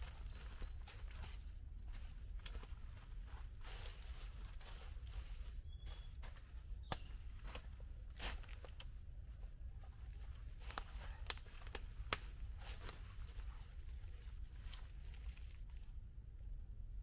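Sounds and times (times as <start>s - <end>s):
steady low rumble: 0.0s - 17.0s
sticks snapping and crackling: 2.0s - 2.8s, 6.8s - 9.0s, 9.9s - 15.9s.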